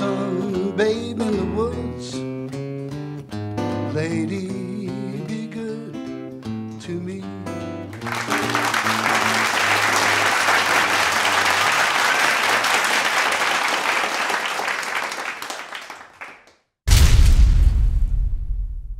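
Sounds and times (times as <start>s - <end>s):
audience applauding: 7.9s - 16.6s.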